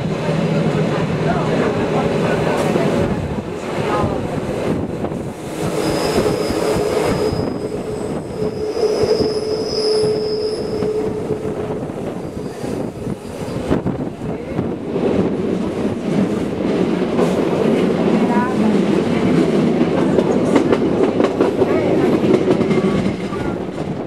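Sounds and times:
train running noise: 0.0s - 24.0s
wheels squealing on rail: 5.5s - 13.8s.

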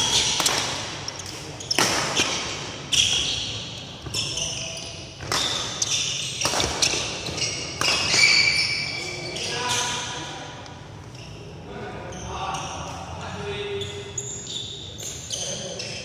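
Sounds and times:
rackets hitting shuttlecock: 0.0s - 3.4s, 5.2s - 8.6s
shoe squeaks on court floor: 0.0s - 10.2s, 13.7s - 16.0s.

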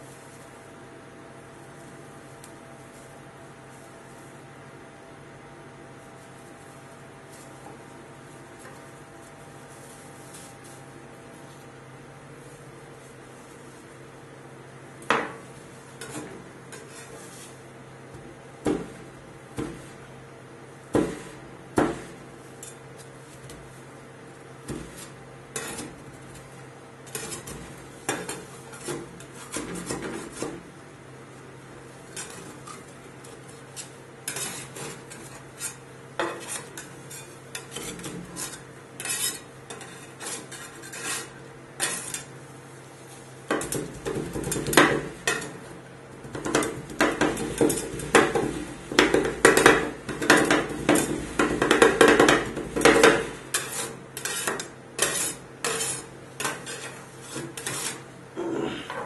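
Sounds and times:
metal spatulas chopping on pan: 18.6s - 19.8s, 20.9s - 22.8s, 24.7s - 26.0s, 27.1s - 30.6s, 33.8s - 42.3s, 43.5s - 45.6s, 46.2s - 58.0s.

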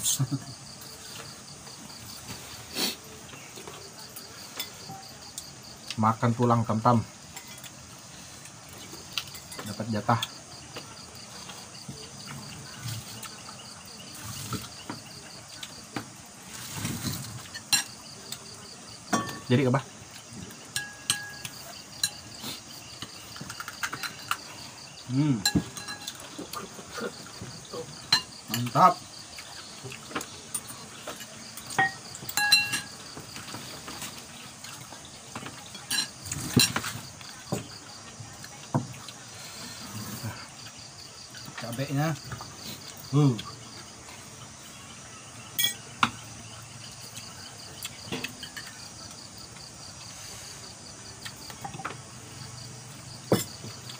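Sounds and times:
crickets chirping: 0.0s - 53.9s
plates and bowls clinking: 9.0s - 10.4s, 16.6s - 18.4s, 19.1s - 19.8s, 20.6s - 22.4s, 23.0s - 24.6s, 25.3s - 29.0s, 29.9s - 34.2s, 34.8s - 37.7s, 45.5s - 46.2s, 48.0s - 49.0s, 51.4s - 52.0s, 53.3s - 53.8s
clicks of plates and utensils: 20.7s - 22.2s, 25.4s - 26.3s, 30.6s - 33.6s, 35.4s - 37.0s.

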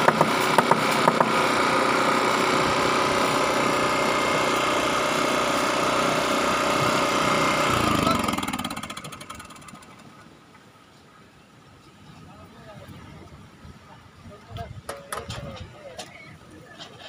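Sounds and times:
generator engine running: 0.0s - 10.3s.

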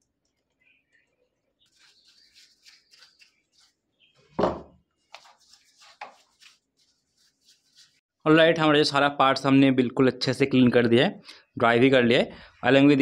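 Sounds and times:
brush scrubbing plastic: 1.6s - 3.9s, 5.0s - 8.0s.

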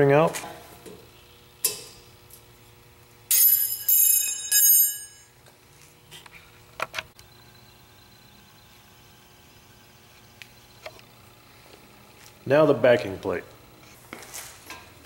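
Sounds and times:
metallic ringing of snap ring: 3.3s - 5.3s.

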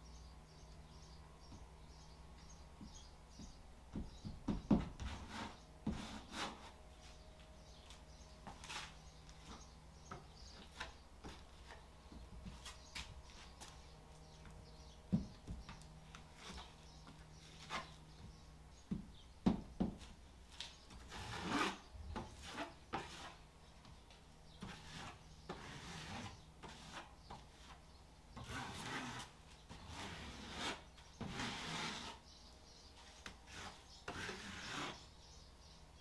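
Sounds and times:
hand tool scraping a surface: 4.7s - 7.2s, 8.5s - 11.8s, 16.2s - 16.8s, 17.4s - 18.0s, 20.9s - 23.4s, 24.6s - 27.8s, 28.4s - 32.3s, 33.0s - 35.1s.

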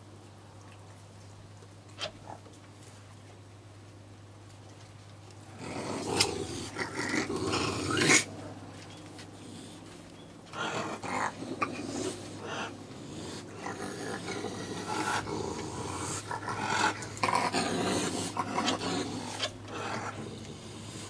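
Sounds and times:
raccoons growling: 5.4s - 8.6s, 9.3s - 21.0s.

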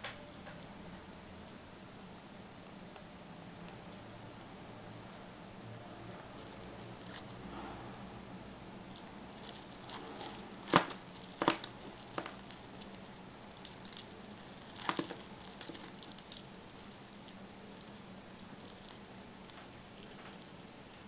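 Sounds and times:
beetles scratching on wood and plastic: 8.8s - 20.4s.

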